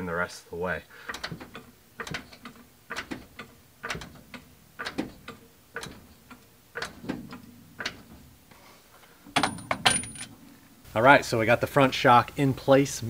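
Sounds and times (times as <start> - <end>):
metallic ratcheting clicks: 1.1 - 8.1.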